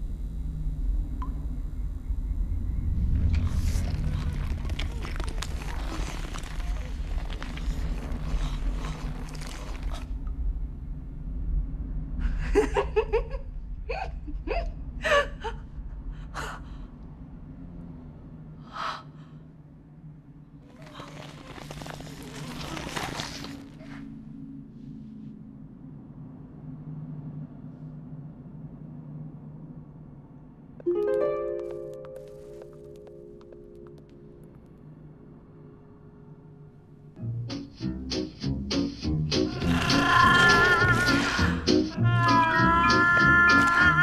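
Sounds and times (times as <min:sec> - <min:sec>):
low steady rumble: 0:00.0 - 0:22.5.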